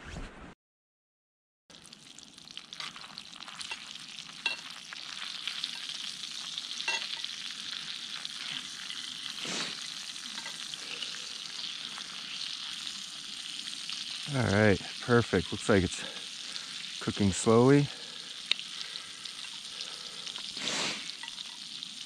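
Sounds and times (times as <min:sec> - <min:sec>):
battered meat sizzling in oil: 0:01.7 - 0:22.0
metal utensil scraping pan: 0:06.9 - 0:07.4, 0:10.3 - 0:10.7.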